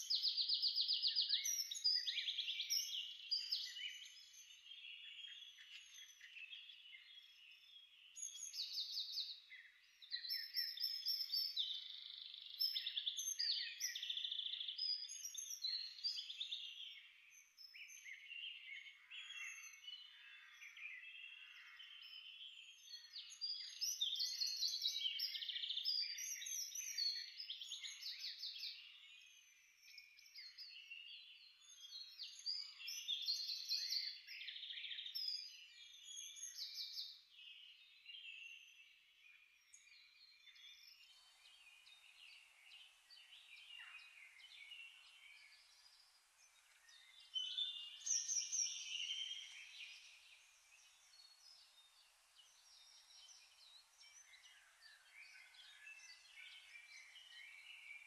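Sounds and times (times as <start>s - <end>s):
small birds chirping and singing: 0.0s - 58.0s
faint hiss: 40.8s - 58.0s.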